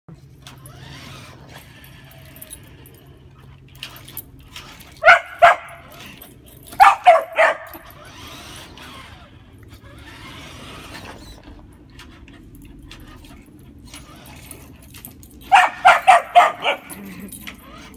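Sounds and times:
puppy barking: 0:05.0 - 0:06.0, 0:06.8 - 0:07.9, 0:15.4 - 0:17.3.

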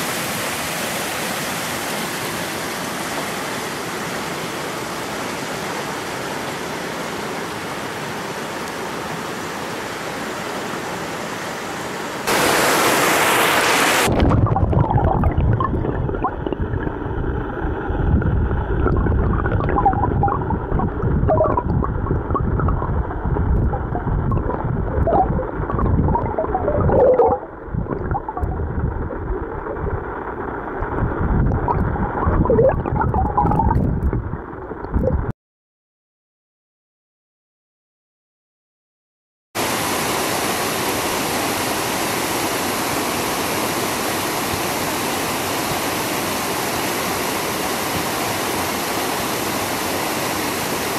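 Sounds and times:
river flowing over stones: 0:00.0 - 0:14.5, 0:39.6 - 0:50.9
muffled underwater rush: 0:12.2 - 0:35.3
bubbles bubbling and chirping: 0:14.0 - 0:35.3.

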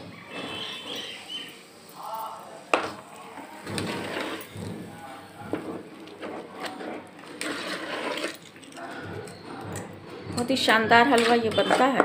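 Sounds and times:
spoon scraping metal pot: 0:03.6 - 0:04.9, 0:05.5 - 0:09.6, 0:10.4 - 0:12.0.

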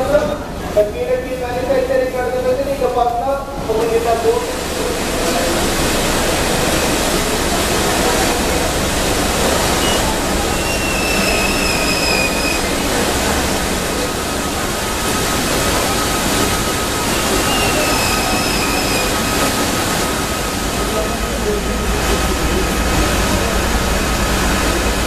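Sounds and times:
thin high squeal: 0:09.8 - 0:12.7.

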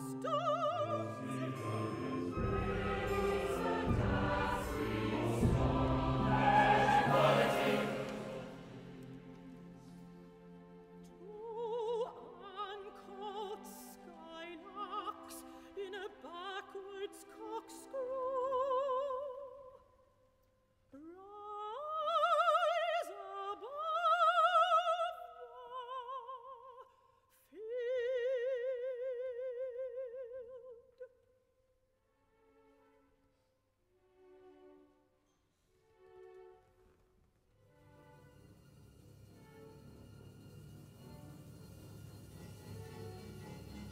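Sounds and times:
operatic soprano singing: 0:00.0 - 0:09.8, 0:11.0 - 0:19.9, 0:21.0 - 0:31.2
held orchestral chords: 0:00.0 - 0:11.7.

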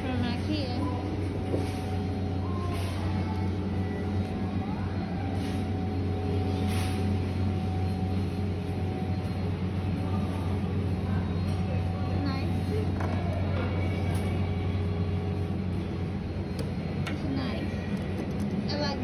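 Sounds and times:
store ambience hum: 0:00.0 - 0:19.0.

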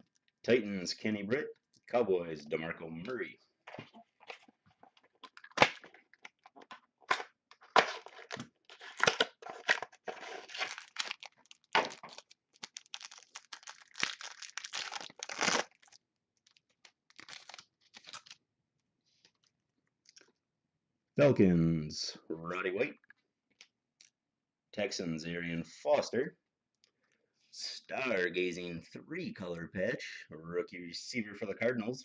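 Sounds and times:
wrapper tearing and crinkling: 0:07.1 - 0:18.4.

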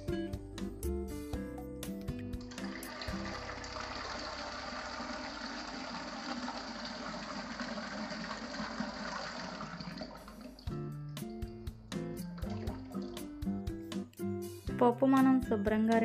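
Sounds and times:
tap water pouring into pot: 0:02.4 - 0:10.7, 0:12.4 - 0:13.3.

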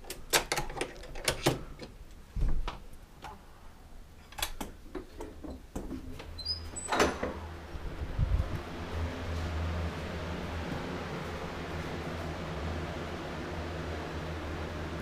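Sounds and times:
door pulled open: 0:06.2 - 0:07.5.

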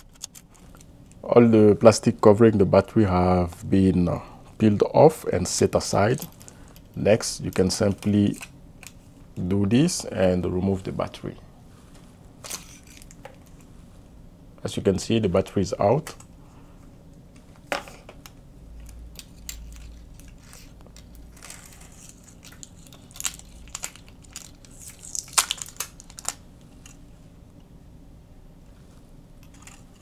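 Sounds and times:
crinkles and clicks of battery: 0:00.0 - 0:01.2, 0:17.3 - 0:27.0, 0:29.4 - 0:30.0.

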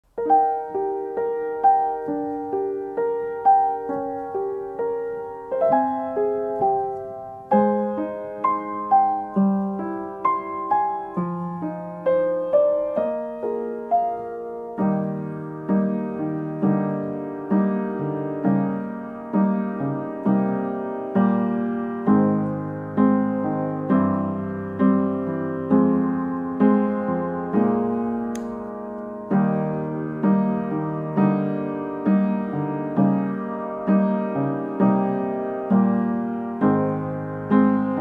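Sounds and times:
piano music: 0:00.0 - 0:38.0.

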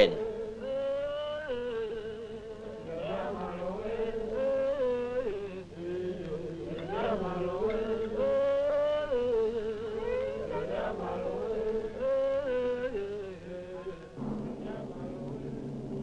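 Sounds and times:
sung chant of held notes: 0:00.0 - 0:16.0.

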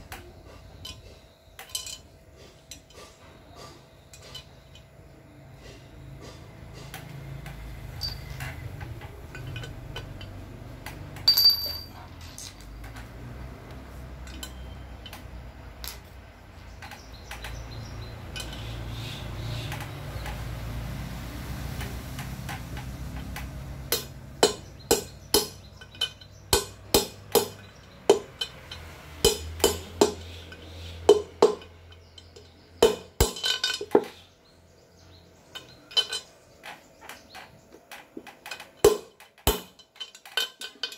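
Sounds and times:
metal parts clinking: 0:00.7 - 0:03.2, 0:04.1 - 0:05.0, 0:07.5 - 0:13.1, 0:14.1 - 0:18.9, 0:23.2 - 0:34.3, 0:35.4 - 0:40.9
rubber mallet tapping metal: 0:23.9 - 0:34.1, 0:38.8 - 0:39.8.

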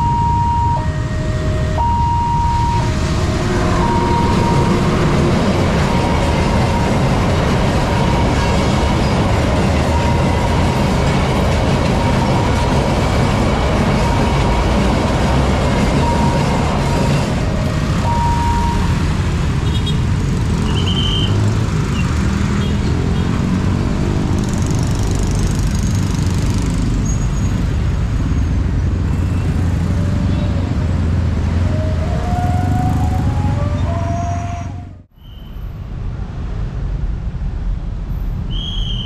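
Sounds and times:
road traffic of cars and motorcycles: 0:00.0 - 0:39.0
train rumbling past: 0:00.0 - 0:39.0
short high beep: 0:18.1 - 0:19.0.

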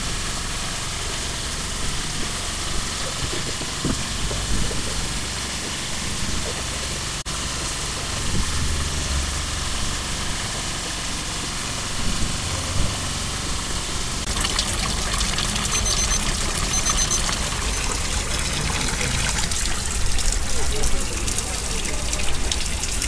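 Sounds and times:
water pouring and splashing: 0:01.1 - 0:07.2, 0:14.2 - 0:23.0.

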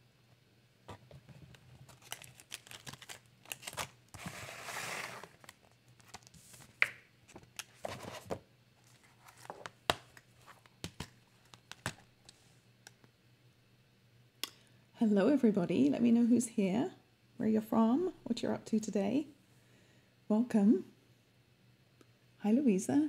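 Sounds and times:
rustling: 0:00.9 - 0:06.8
crinkling rustle: 0:00.9 - 0:12.4.

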